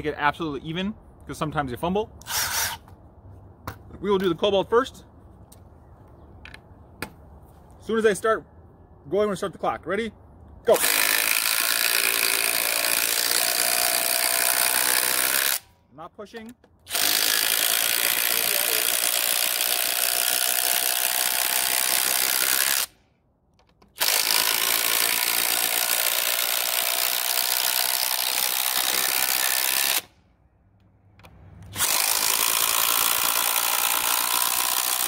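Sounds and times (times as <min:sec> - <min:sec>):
impact driver driving screws into wood: 0:02.2 - 0:02.9, 0:10.8 - 0:15.6, 0:16.4 - 0:22.9, 0:23.6 - 0:30.1, 0:31.2 - 0:35.0.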